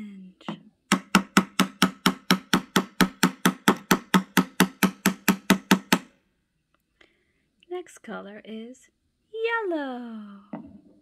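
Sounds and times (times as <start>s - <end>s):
wooden mallet knocking plastic peg: 0.5s - 6.1s.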